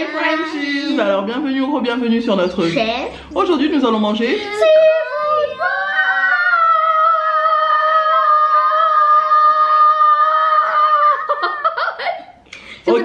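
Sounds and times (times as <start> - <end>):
children singing high note: 4.6 - 11.3.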